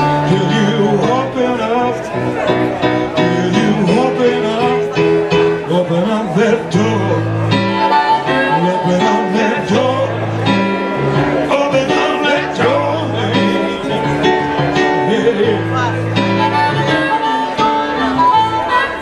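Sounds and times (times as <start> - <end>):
blues band playing: 0.0 - 19.0
piano: 0.0 - 19.0
steady bass: 0.0 - 19.0.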